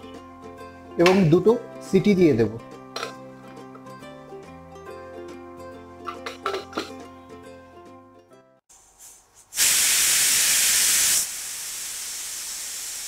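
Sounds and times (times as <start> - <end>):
pressure cooker whistle hissing: 9.6 - 13.0.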